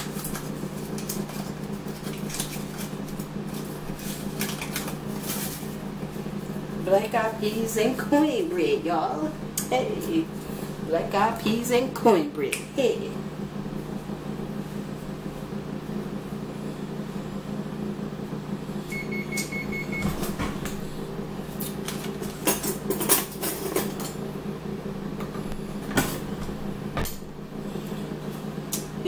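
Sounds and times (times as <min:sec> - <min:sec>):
kitchen appliance humming: 0:00.0 - 0:29.0
kitchen items knocking and clattering: 0:21.8 - 0:24.2.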